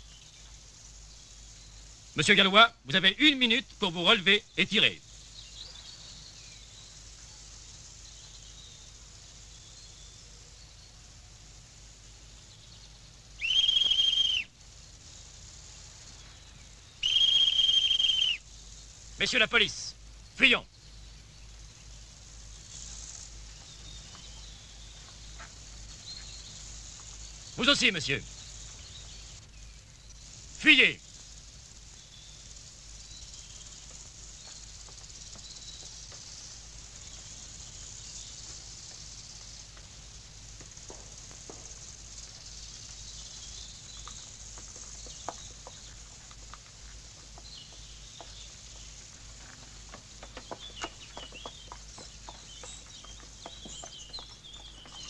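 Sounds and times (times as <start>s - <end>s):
high hiss: 0.0s - 55.0s
police whistle blasts: 13.4s - 14.5s, 17.0s - 18.4s
faint ticks: 30.1s - 55.0s.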